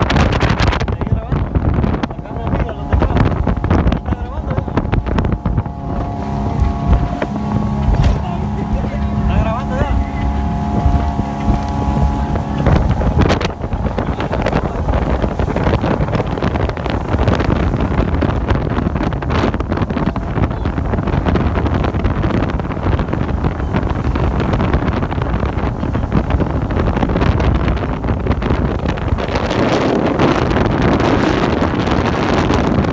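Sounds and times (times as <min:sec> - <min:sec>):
boat engine running: 0:00.0 - 0:32.9
rushing water: 0:00.0 - 0:32.9
wind buffeting microphone: 0:00.0 - 0:32.9.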